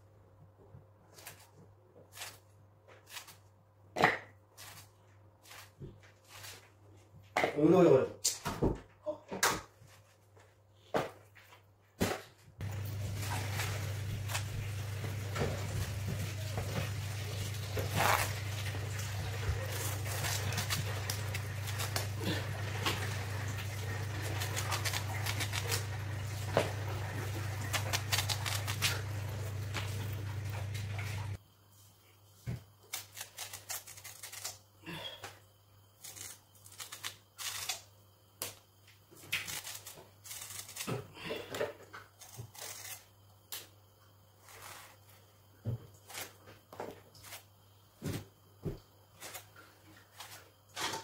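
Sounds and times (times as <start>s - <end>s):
blade scraping and slicing gourd: 12.6s - 31.4s
steady low hum: 12.6s - 31.4s.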